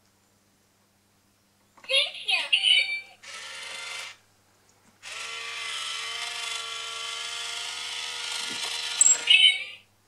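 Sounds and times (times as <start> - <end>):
toy motor and gears whirring: 3.2 - 4.2, 5.0 - 9.8.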